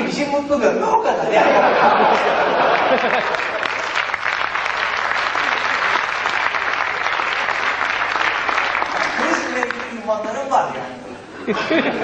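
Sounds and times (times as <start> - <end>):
audience applauding: 1.9 - 10.1.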